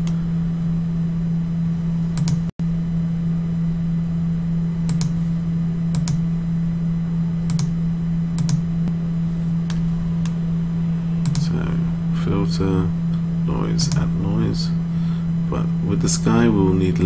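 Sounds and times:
low electrical hum: 0.0 - 17.0
mouse and keyboard clicks: 11.2 - 11.5.

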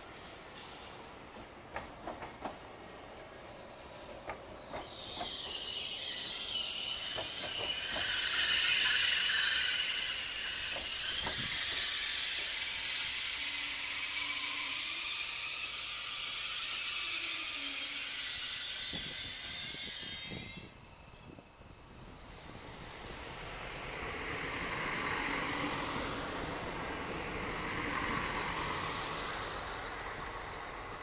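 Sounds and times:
train hiss and whine: 0.0 - 31.0
train wheels clicking on rail joints: 0.6 - 2.7, 3.9 - 14.8, 22.5 - 31.0.

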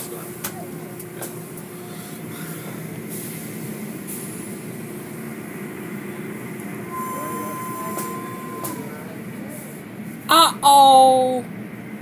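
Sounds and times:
machinery hum: 3.6 - 10.3.

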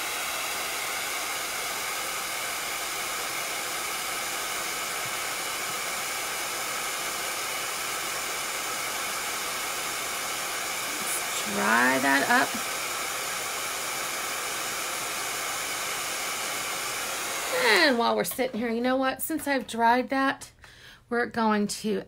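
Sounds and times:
heat tool blowing air: 0.0 - 18.4.

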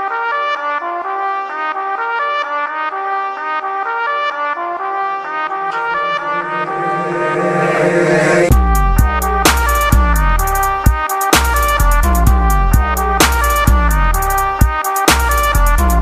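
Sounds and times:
fast brass-led music: 0.1 - 16.0
heavy bass and drums: 8.5 - 16.0.

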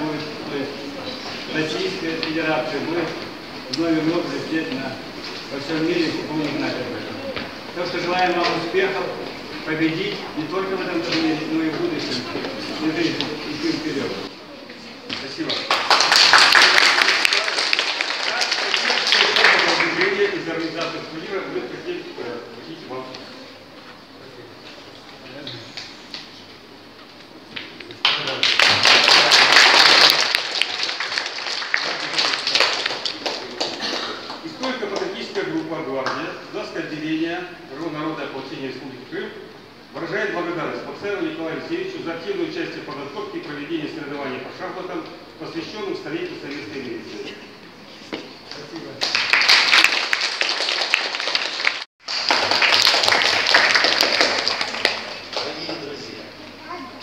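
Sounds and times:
audience clapping: 15.2 - 20.9, 27.8 - 35.1, 49.0 - 56.0
people applauding: 15.2 - 20.9, 27.9 - 35.1, 49.0 - 56.2.

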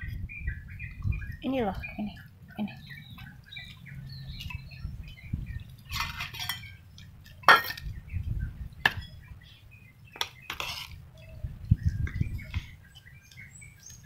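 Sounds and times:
food bowls clinking and knocking: 5.9 - 8.0.

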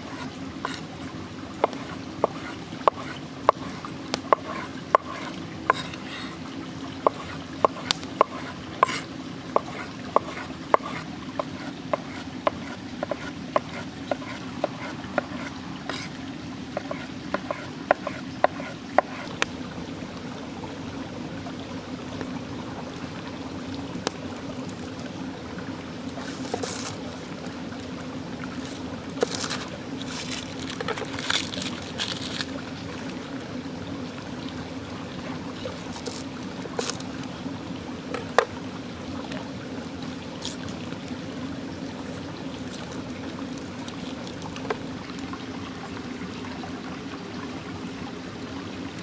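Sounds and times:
flowing stream: 0.0 - 49.0.

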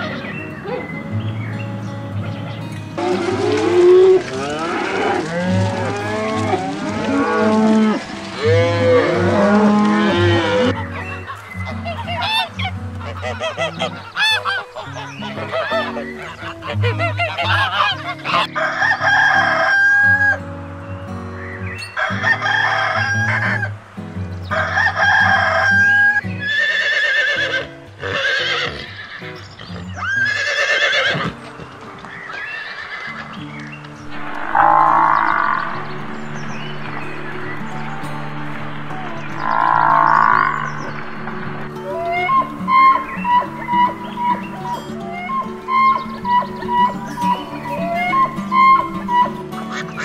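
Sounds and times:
goose honking: 11.9 - 18.5, 39.4 - 50.0
rooster crowing: 18.4 - 20.4, 22.0 - 23.7, 24.5 - 26.2
background music: 33.5 - 50.0.

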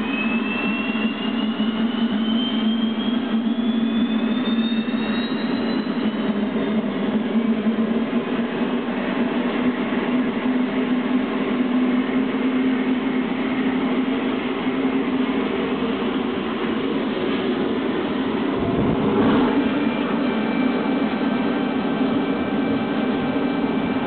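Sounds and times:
gas turbine running: 6.3 - 24.0.

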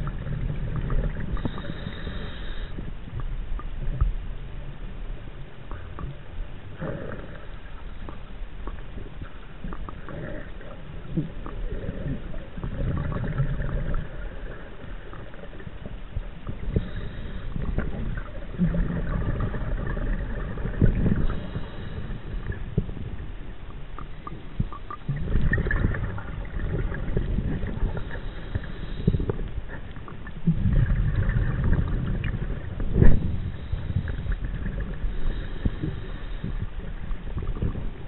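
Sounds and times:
underwater exhaled air bubbling: 0.0 - 38.0
hissing inhalations: 1.4 - 2.8, 16.7 - 17.6, 35.1 - 36.7.

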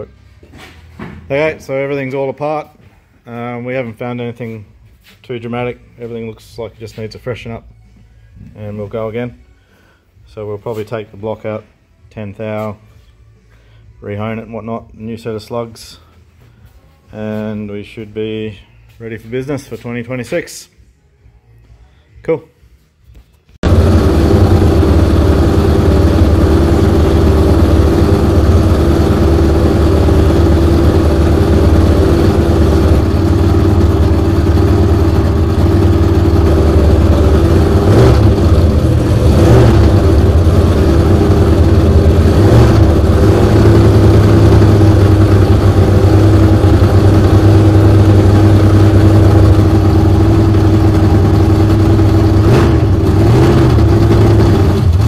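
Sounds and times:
car engine idling: 23.6 - 55.0.

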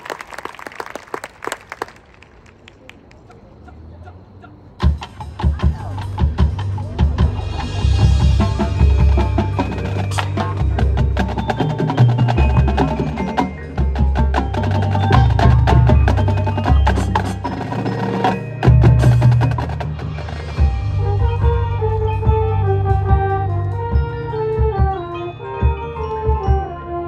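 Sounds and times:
marching band playing: 4.7 - 27.0
drumline strikes: 4.8 - 26.7
mallet keyboards: 4.8 - 27.0
deep bass: 4.9 - 12.9, 18.6 - 25.2.

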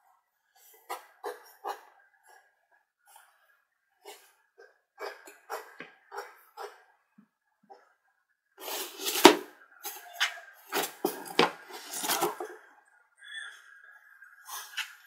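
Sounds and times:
cats scratching cardboard: 8.6 - 9.5, 10.7 - 12.5.

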